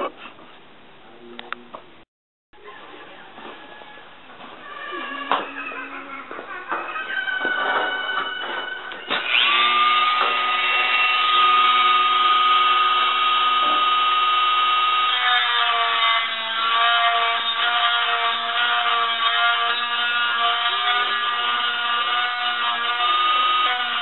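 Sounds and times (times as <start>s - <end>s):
rotary tool grinding steel: 9.1s - 24.0s.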